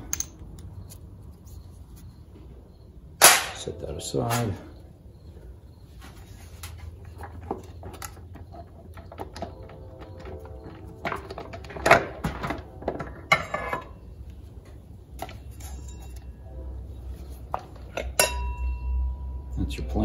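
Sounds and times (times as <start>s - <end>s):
metal gear parts clinking: 0.0s - 0.7s.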